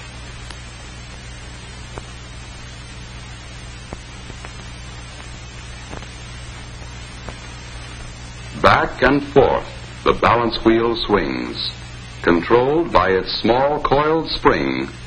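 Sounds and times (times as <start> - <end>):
film soundtrack hiss: 0.0 - 15.0
low mains hum: 0.0 - 15.0
faint clicks: 3.9 - 8.2.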